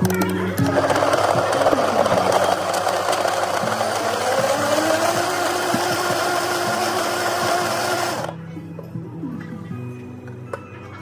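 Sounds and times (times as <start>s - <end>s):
soft background music: 0.0s - 11.0s
blender motor running: 0.6s - 8.4s.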